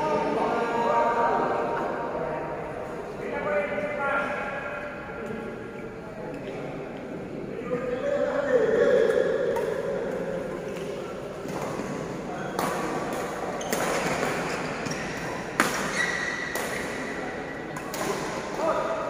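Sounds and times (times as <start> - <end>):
rackets hitting shuttlecock: 9.5 - 18.7.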